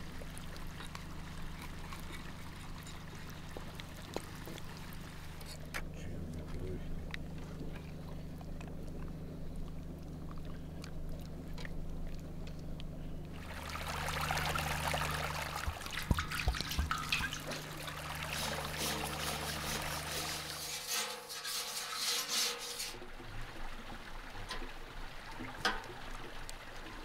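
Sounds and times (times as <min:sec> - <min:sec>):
water trickling: 0:00.0 - 0:05.7, 0:06.3 - 0:27.0
steady low hum: 0:00.0 - 0:20.9.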